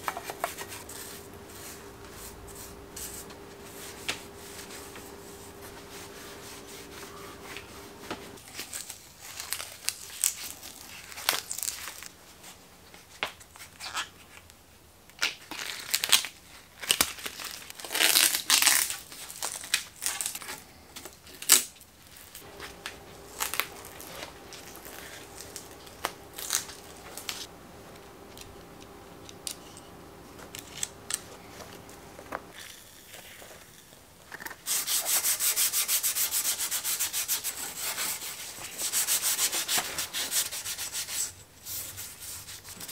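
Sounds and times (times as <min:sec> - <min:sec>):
faint steady hum: 0:00.0 - 0:13.0, 0:17.7 - 0:34.3
rag rubbing bicycle frame: 0:00.3 - 0:08.4
crinkling and tearing: 0:08.4 - 0:12.2, 0:15.2 - 0:27.5.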